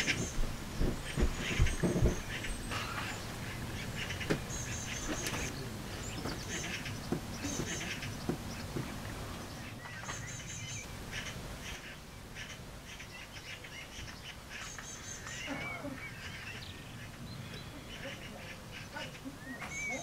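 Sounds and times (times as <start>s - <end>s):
magpies chattering: 0.0s - 20.0s.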